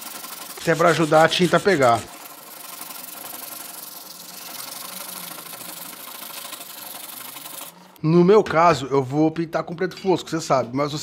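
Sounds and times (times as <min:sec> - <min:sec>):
sandpaper rasping on metal: 0:00.0 - 0:07.8.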